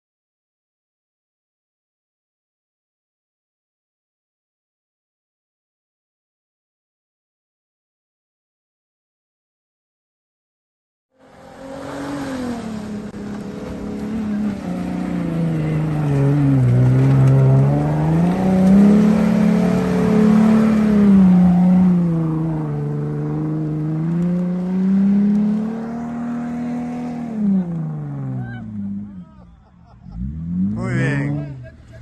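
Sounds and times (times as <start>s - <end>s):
engine revving: 11.2s - 29.3s, 30.0s - 32.0s.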